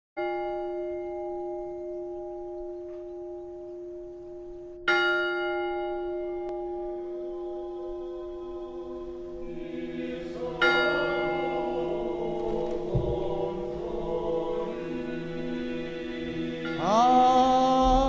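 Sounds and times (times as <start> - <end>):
large church bell ringing: 0.2 - 12.3, 16.4 - 17.9.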